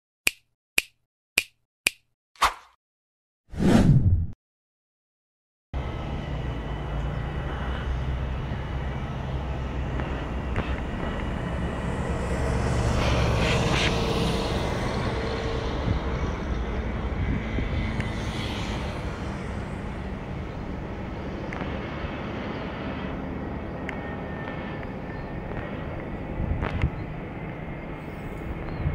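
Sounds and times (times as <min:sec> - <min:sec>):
jet engines rumbling: 0:05.8 - 0:28.9
wind buffeting microphone: 0:13.1 - 0:19.2, 0:24.4 - 0:27.7.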